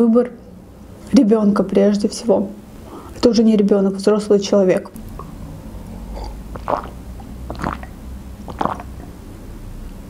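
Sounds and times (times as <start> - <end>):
person gulping a drink: 5.0 - 9.1.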